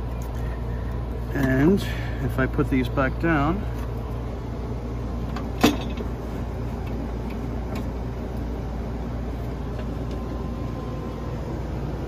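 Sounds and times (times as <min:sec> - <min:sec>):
steady low hum: 0:00.0 - 0:12.0
metal steps set down clunk: 0:05.3 - 0:06.1.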